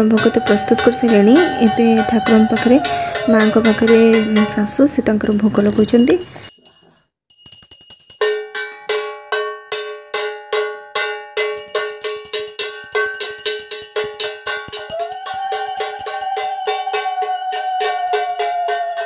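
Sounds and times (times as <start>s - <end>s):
steady held tone: 0.0s - 6.6s
hand bell ringing: 0.0s - 9.1s, 11.4s - 19.0s.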